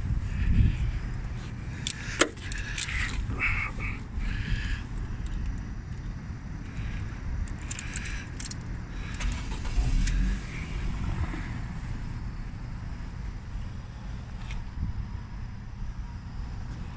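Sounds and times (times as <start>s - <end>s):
car engine idling: 0.0s - 16.9s
clicks and jingling in car cabin: 1.8s - 3.3s, 7.4s - 9.6s.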